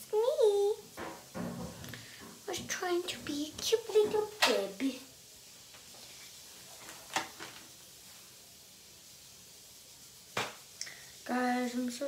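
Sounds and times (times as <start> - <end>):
faint hiss: 0.0 - 12.0.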